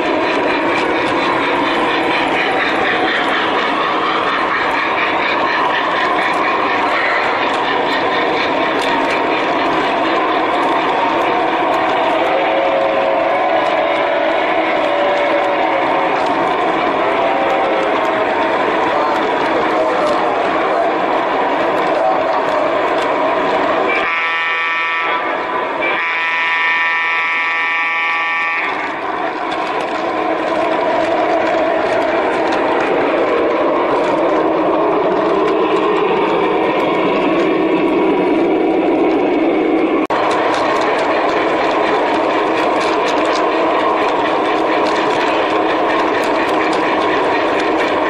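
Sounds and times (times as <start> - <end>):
train rumbling on track: 0.0 - 48.0
model train horn blast: 23.9 - 28.8.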